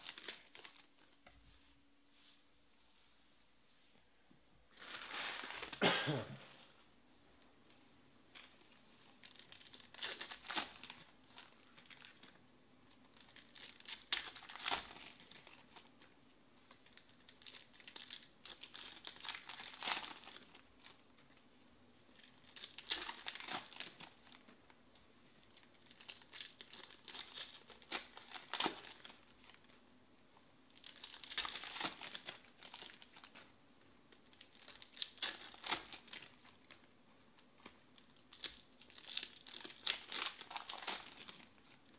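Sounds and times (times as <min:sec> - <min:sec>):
foil wrappers tearing and crinkling: 0:00.0 - 0:00.9, 0:04.8 - 0:05.8, 0:09.2 - 0:12.3, 0:13.1 - 0:15.9, 0:16.7 - 0:21.0, 0:22.2 - 0:24.4, 0:25.5 - 0:29.7, 0:30.7 - 0:33.5, 0:34.2 - 0:36.8, 0:38.0 - 0:41.7.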